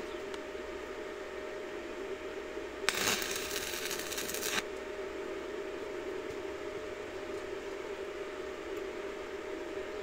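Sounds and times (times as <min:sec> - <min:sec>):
low hum with faint tone: 0:00.0 - 0:10.0
welding arc crackling: 0:02.9 - 0:04.6.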